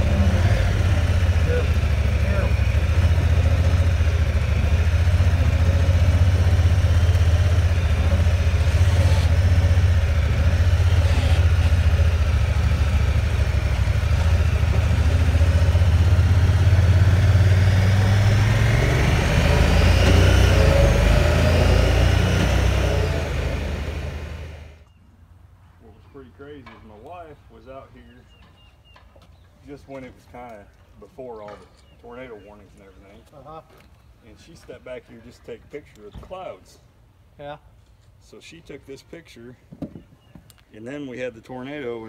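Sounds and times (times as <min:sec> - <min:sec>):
engine low rumble: 0:00.0 - 0:28.6.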